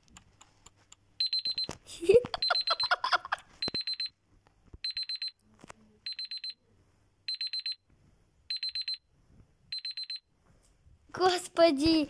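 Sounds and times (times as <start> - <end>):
timer alarm beeping: 1.2 - 1.8, 2.4 - 4.1, 4.8 - 5.4, 6.1 - 6.6, 7.3 - 7.8, 8.5 - 9.0, 9.7 - 10.3.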